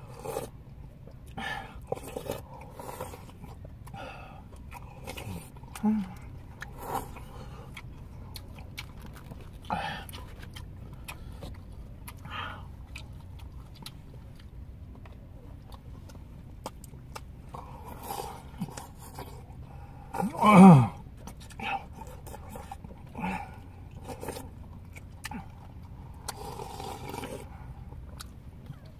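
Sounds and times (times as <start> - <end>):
people chewing: 0.0 - 28.9
person grunting: 20.2 - 21.0.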